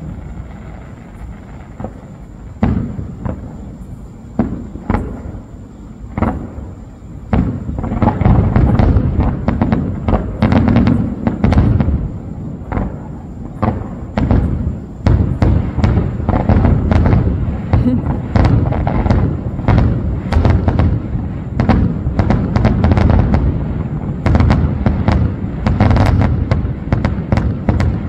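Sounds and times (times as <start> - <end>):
fireworks bursting: 0.0 - 28.0.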